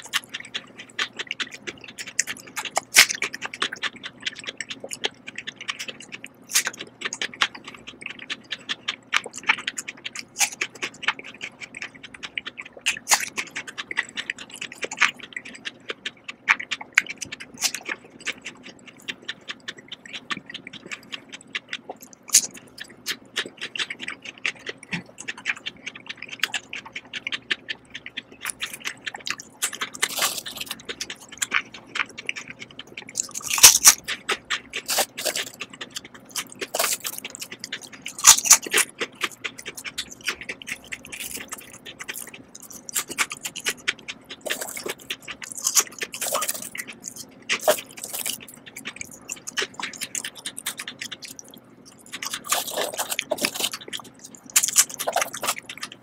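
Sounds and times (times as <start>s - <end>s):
crunching and chewing chips: 0.0s - 56.0s
chips rustling and scraping: 33.2s - 40.3s, 52.2s - 55.9s.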